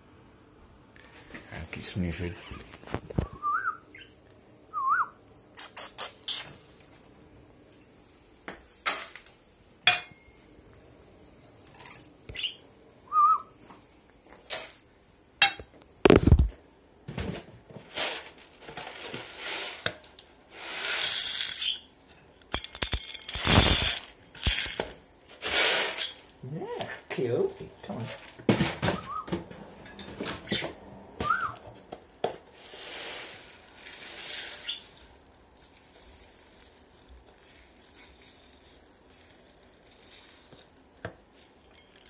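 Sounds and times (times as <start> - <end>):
budgie chirping: 5.6 - 6.6
rustling hisses: 20.5 - 21.4, 25.4 - 26.2, 32.5 - 35.0.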